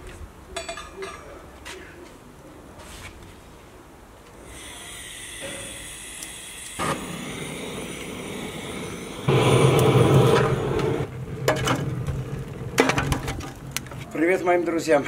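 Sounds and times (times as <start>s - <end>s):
electric blower whine: 4.6s - 11.1s.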